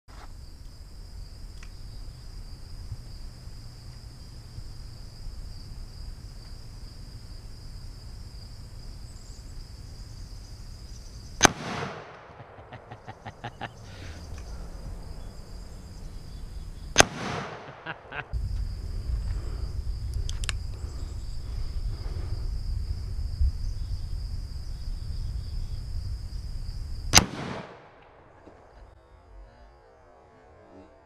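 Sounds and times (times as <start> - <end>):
high insect buzz: 0.1 - 11.5, 12.5 - 27.2, 28.4 - 31.0
revolver gunshot with echo: 11.4 - 12.8, 17.0 - 18.1, 27.1 - 28.0.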